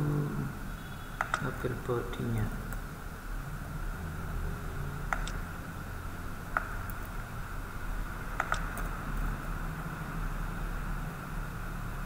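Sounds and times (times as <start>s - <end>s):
low hum and hiss: 0.0s - 12.0s
computer key clicks: 1.2s - 1.6s, 5.1s - 5.4s, 8.4s - 8.9s.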